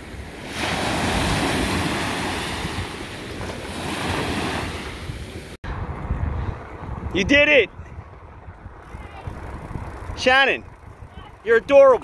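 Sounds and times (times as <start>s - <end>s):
ocean surf breaking on beach: 0.0s - 5.6s
wind buffeting microphone: 0.0s - 12.0s.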